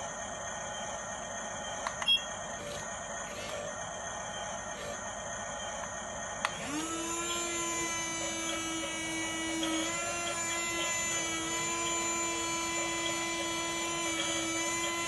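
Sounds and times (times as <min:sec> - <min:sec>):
small electric motor whining: 0:02.3 - 0:15.0.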